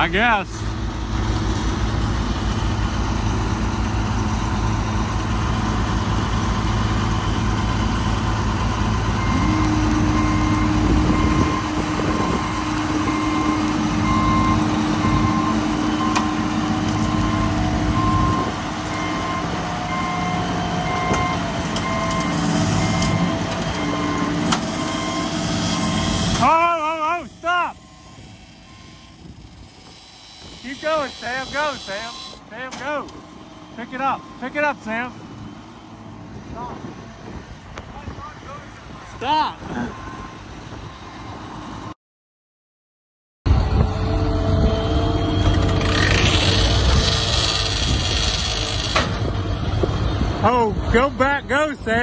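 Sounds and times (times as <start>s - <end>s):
diesel engine running: 0.0s - 41.9s, 43.5s - 52.0s
backup alarm beeping: 9.2s - 26.2s.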